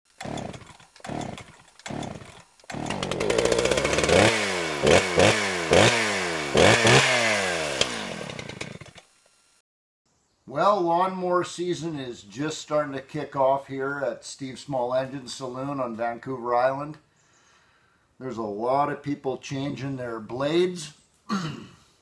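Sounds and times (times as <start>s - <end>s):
chainsaw engine revving: 0.1s - 9.6s
chainsaw engine sputtering: 0.1s - 9.6s.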